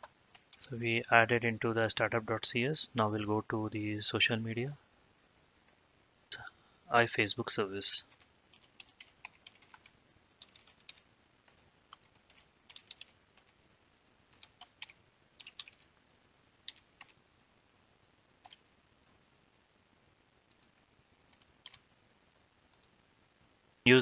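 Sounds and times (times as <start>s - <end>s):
keyboard typing: 8.1s - 13.6s, 14.3s - 15.9s, 16.6s - 17.2s, 18.4s - 18.6s, 20.5s - 21.8s.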